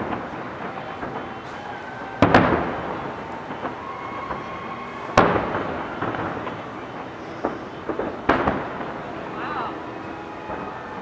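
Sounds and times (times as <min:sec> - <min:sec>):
firework shells bursting: 0:05.2 - 0:09.2.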